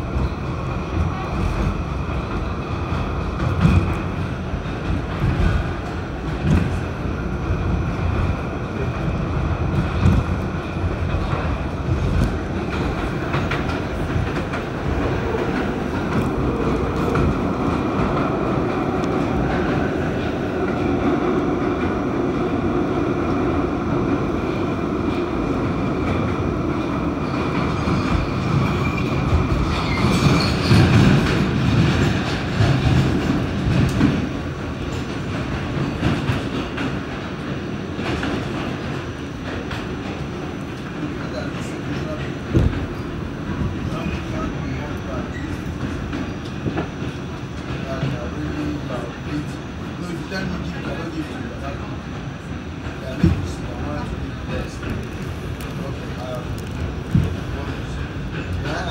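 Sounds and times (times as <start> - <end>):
subway wheels on rails: 0.0 - 58.9
high wheel squeal: 27.9 - 30.9.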